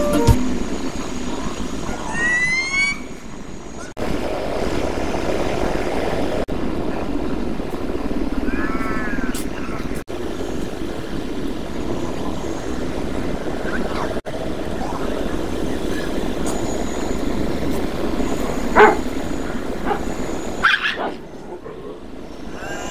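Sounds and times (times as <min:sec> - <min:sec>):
street traffic hum: 0:00.0 - 0:22.9
dog barking: 0:18.7 - 0:19.1, 0:19.8 - 0:21.2
dog yelping: 0:18.7 - 0:19.1, 0:19.8 - 0:21.2.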